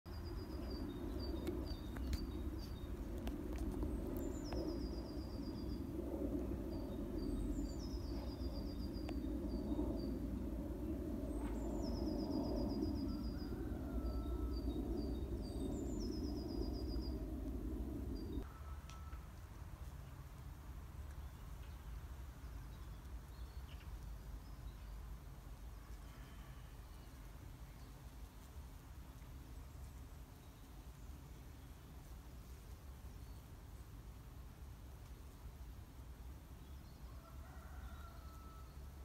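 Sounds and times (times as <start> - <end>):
songbird singing: 0.1 - 19.2.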